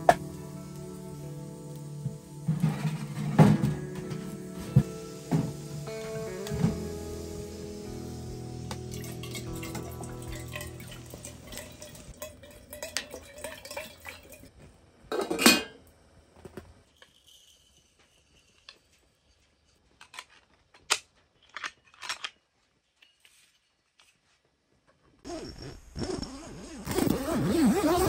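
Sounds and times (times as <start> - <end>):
background music: 0.0 - 14.2.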